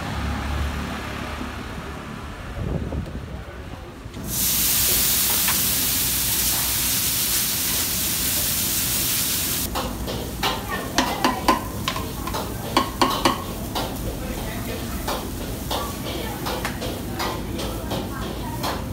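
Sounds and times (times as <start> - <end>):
water sizzling on hot griddle: 4.2 - 18.9.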